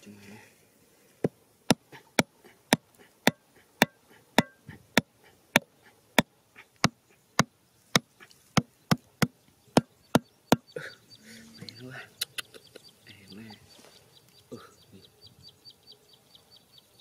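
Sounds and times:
hammer knocking on bamboo stake: 0:01.7 - 0:04.6.

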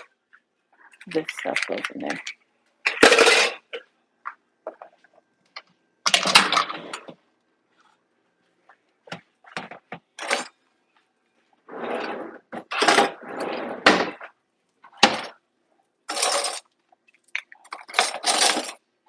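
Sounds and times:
cutlery clattering into drawer: 0:02.9 - 0:03.6, 0:16.1 - 0:16.6, 0:17.7 - 0:18.8.

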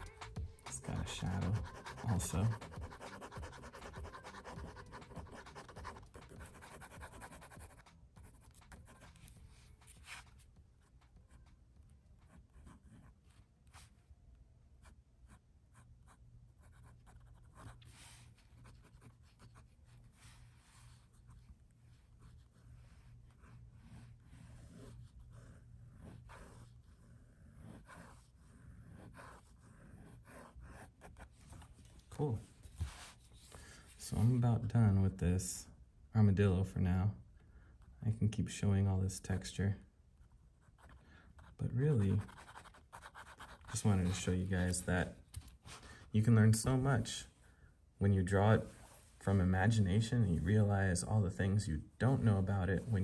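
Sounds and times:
drawing tool scratching on paper: 0:00.0 - 0:10.4, 0:23.3 - 0:31.6, 0:40.6 - 0:44.3.

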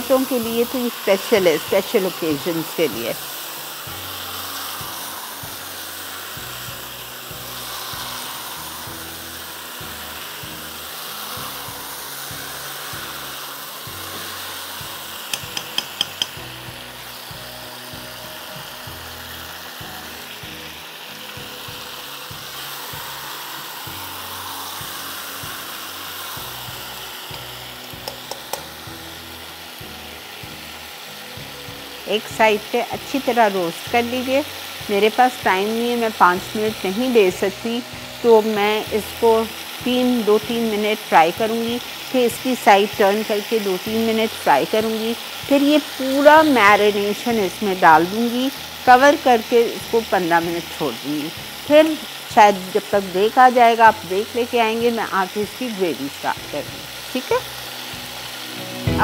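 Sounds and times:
chicken sizzling in oil: 0:00.0 - 0:59.0
fork knocking on pan: 0:15.3 - 0:16.4.

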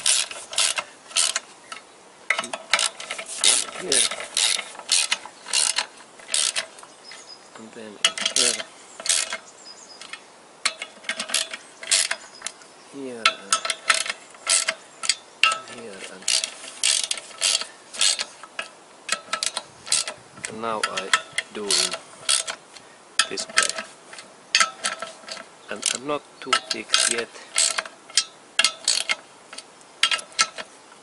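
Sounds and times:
socket ratchet clicking: 0:00.0 - 0:06.7, 0:13.3 - 0:15.6, 0:16.2 - 0:22.6, 0:24.6 - 0:30.7.

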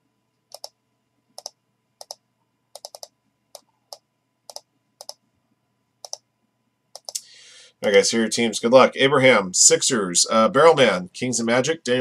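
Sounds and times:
mouse and keyboard clicks: 0:00.5 - 0:00.8, 0:01.4 - 0:02.2, 0:02.8 - 0:05.2, 0:06.0 - 0:06.2, 0:07.0 - 0:07.2.

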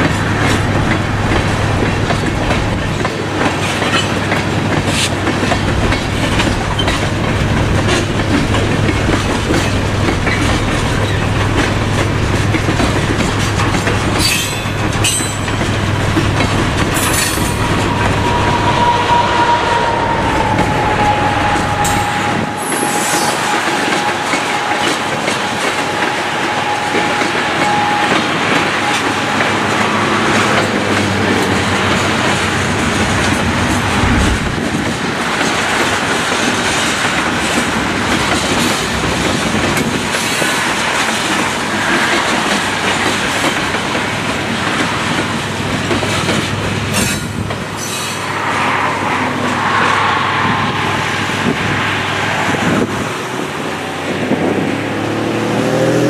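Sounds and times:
train wheels clattering over rail joints: 0:00.0 - 0:19.1, 0:21.0 - 0:48.8
thin wheel squeal: 0:17.0 - 0:28.2.

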